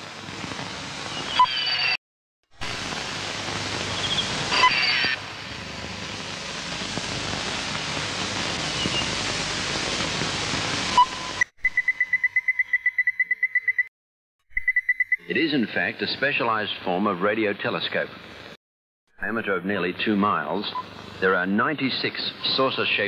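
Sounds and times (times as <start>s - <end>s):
loud hiss: 2.6s - 11.4s
faint chirps: 11.6s - 13.9s.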